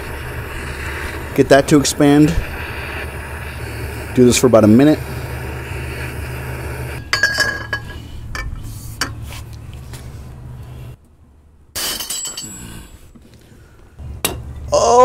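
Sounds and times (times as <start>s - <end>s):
torch flame hissing: 0.0s - 7.0s.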